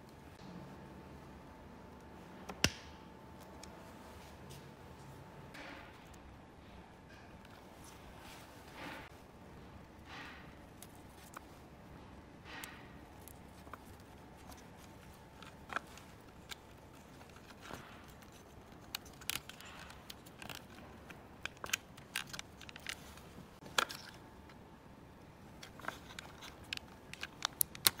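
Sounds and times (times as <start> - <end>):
plastic parts clicking: 12.4 - 24.2, 25.6 - 28.0.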